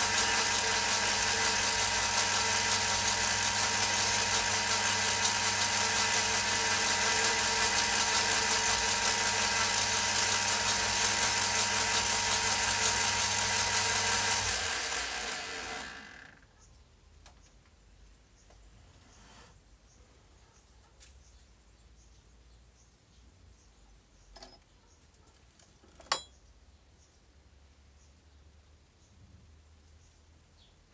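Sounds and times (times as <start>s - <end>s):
metal lathe running: 0.0s - 16.2s.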